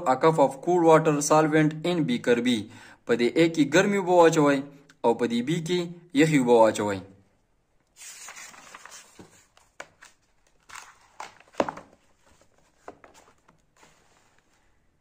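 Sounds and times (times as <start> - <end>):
paper page turning: 7.9 - 14.8.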